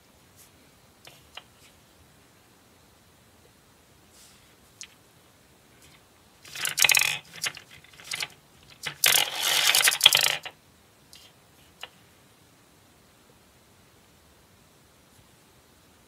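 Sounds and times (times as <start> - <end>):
gumball clattering down plastic chute: 6.5 - 10.5.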